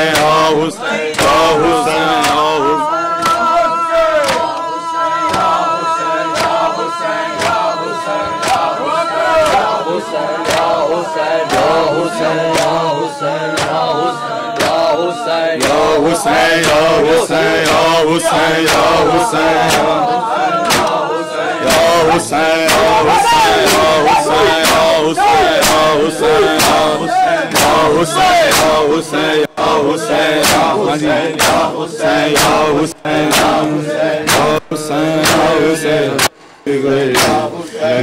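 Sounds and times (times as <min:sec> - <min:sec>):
men chanting in unison: 0:00.0 - 0:38.0
hands slapping chests: 0:00.1 - 0:00.5, 0:01.1 - 0:02.6, 0:04.2 - 0:04.7, 0:05.3 - 0:05.6, 0:06.3 - 0:06.6, 0:07.4 - 0:07.6, 0:08.4 - 0:08.7, 0:10.4 - 0:10.8, 0:12.5 - 0:12.8, 0:13.6 - 0:13.9, 0:14.6 - 0:14.9, 0:15.6 - 0:16.0, 0:19.6 - 0:20.0, 0:20.6 - 0:21.0, 0:25.6 - 0:26.0, 0:26.6 - 0:27.8, 0:28.5 - 0:28.8, 0:30.4 - 0:30.8, 0:31.4 - 0:31.7, 0:34.3 - 0:34.6, 0:37.1 - 0:37.4.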